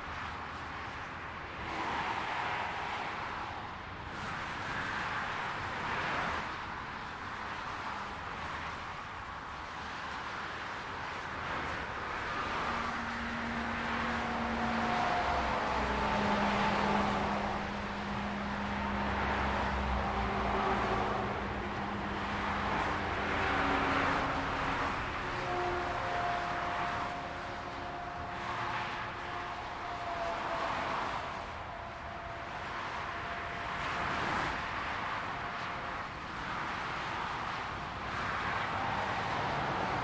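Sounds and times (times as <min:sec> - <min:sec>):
cars passing at speed: 0:00.0 - 0:40.0
heavy lorries engine drone: 0:09.0 - 0:40.0.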